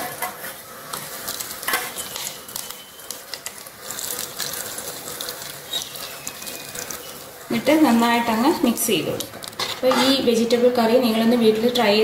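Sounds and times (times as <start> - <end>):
hot oil crackling and popping: 0.0 - 10.2.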